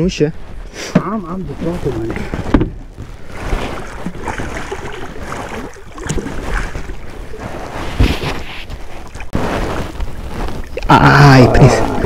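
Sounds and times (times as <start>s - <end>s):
thump: 2.4s - 2.8s
fish splashing in water: 3.2s - 10.2s.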